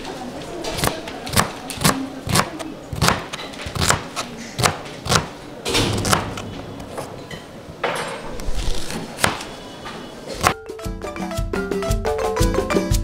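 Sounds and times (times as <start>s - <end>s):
knife chopping on cutting board: 0.8s - 5.3s.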